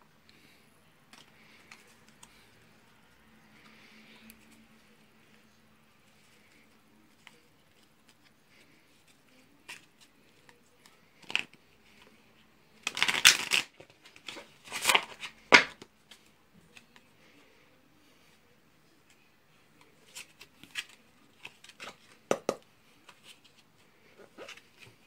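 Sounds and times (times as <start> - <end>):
cards snapping: 12.8 - 13.7
cards riffle-shuffled: 12.8 - 17.0.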